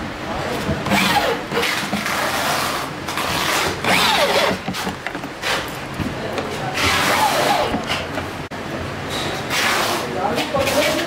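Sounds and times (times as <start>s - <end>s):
cordless drill motor whirring: 3.8s - 5.0s.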